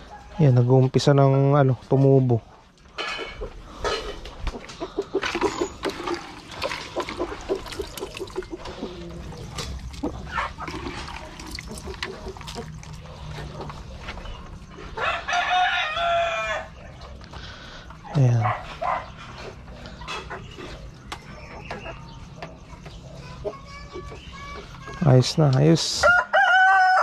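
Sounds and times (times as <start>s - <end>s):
chickens clucking: 0.0s - 25.7s
rooster crowing: 14.8s - 16.8s, 26.0s - 27.0s.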